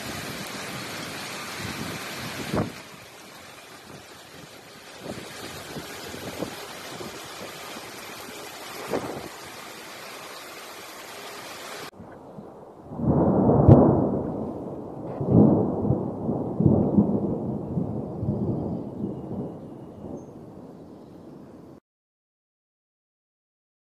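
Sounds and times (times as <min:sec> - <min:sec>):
storm wind on microphone: 0:00.0 - 0:09.8, 0:11.9 - 0:20.8
deep rolling thunder: 0:08.8 - 0:09.4, 0:12.2 - 0:20.7.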